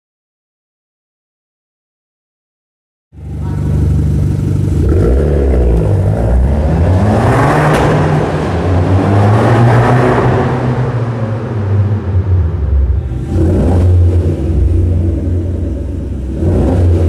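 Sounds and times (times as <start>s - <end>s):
car engine revving in tunnel: 3.2s - 17.0s.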